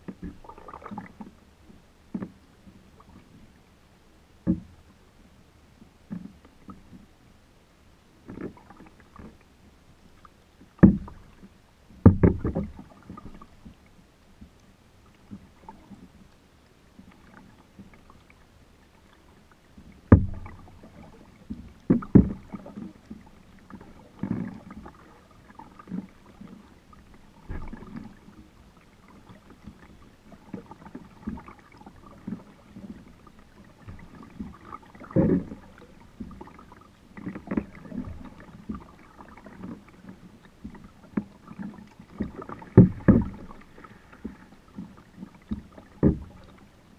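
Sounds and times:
paddle strokes splashing: 0.0s - 3.6s, 8.2s - 46.9s
water slapping against hull: 0.0s - 3.6s, 4.4s - 5.0s, 8.2s - 46.9s
knocks and thumps on kayak: 4.4s - 4.8s, 10.7s - 11.4s, 12.0s - 13.5s, 19.8s - 26.6s, 27.4s - 28.4s, 29.0s - 46.7s.

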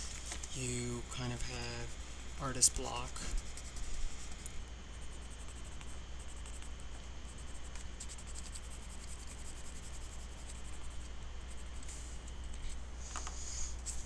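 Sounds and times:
pencil scratching on paper: 2.8s - 4.4s, 5.0s - 6.7s, 7.3s - 11.9s.

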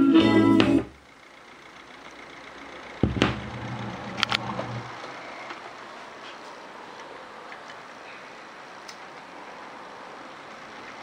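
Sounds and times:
low mechanical hum: 0.0s - 11.0s
turntable mechanism thump: 3.0s - 5.0s.

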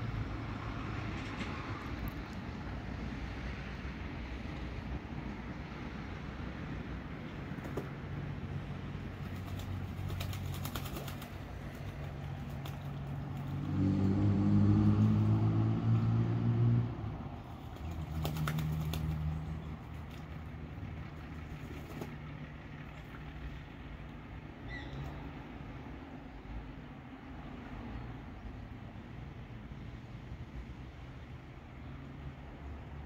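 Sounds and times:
low engine-like hum: 0.0s - 33.0s
duck splashing and flapping: 7.6s - 8.0s, 9.0s - 13.8s, 17.4s - 23.2s.

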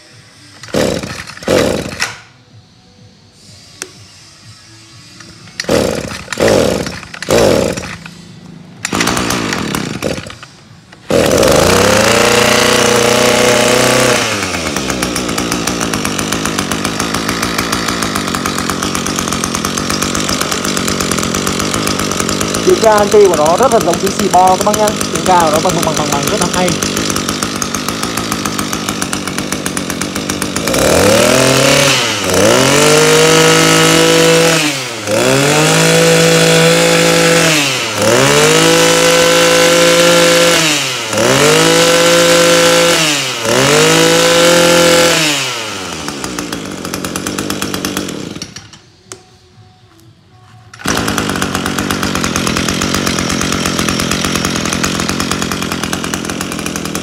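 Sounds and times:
brush cutter engine idling and revving: 0.1s - 2.4s, 5.2s - 48.8s, 50.7s - 57.0s.

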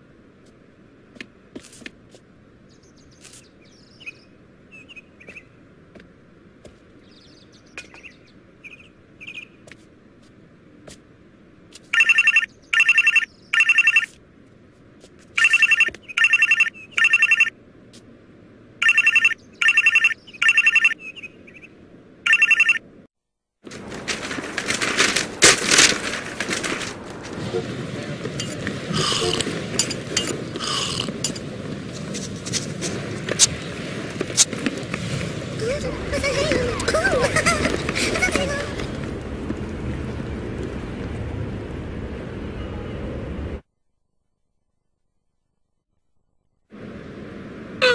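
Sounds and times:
electronic telephone ringing: 11.9s - 14.1s, 15.4s - 17.5s, 18.8s - 21.0s, 22.2s - 22.8s.

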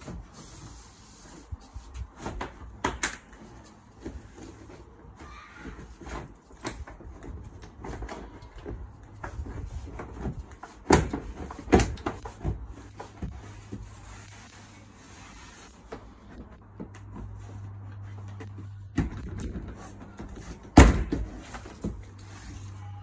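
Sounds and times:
plastic shed parts knocking: 2.2s - 14.0s, 18.2s - 22.2s.

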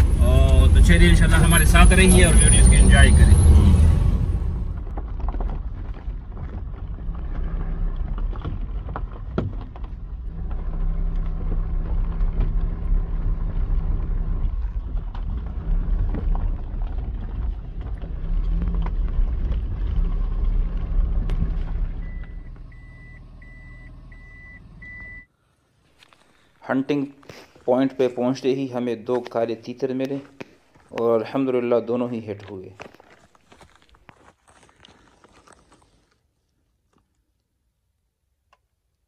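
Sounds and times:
vehicle engine and road rumble: 0.0s - 25.3s.

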